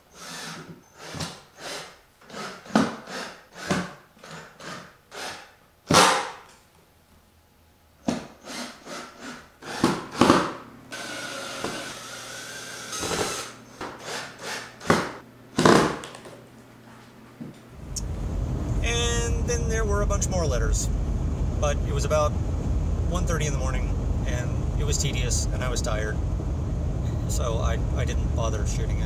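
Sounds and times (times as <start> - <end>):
mechanical whir: 10.9 - 14.8, 17.7 - 29.0.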